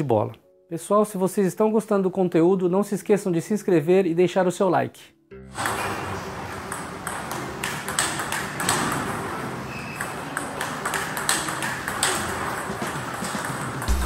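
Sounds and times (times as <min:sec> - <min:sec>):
table tennis ball clicking: 0:06.7 - 0:13.9.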